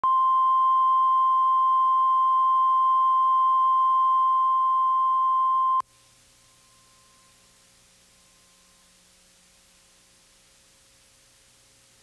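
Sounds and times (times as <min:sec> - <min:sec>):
faint tape hiss: 0:00.0 - 0:12.0.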